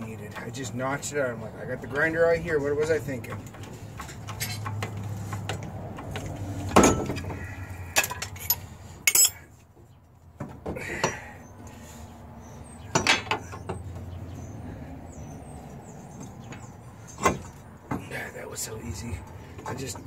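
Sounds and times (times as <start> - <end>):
metal tools clanking: 2.8 - 9.6, 12.8 - 13.8.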